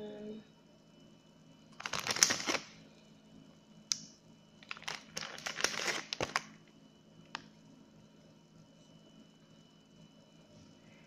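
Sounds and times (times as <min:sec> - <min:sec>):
plastic crinkling and crackling: 0:01.8 - 0:02.8, 0:04.6 - 0:06.6.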